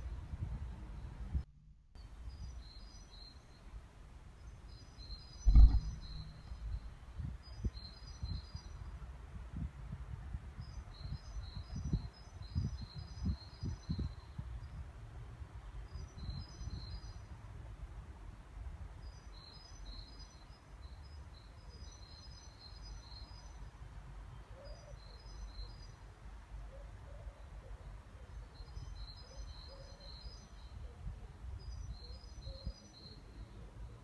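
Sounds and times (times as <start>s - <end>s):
faint bird chirps: 4.4s - 8.9s, 24.3s - 26.1s, 26.7s - 34.0s
steady low rumble: 5.3s - 7.5s.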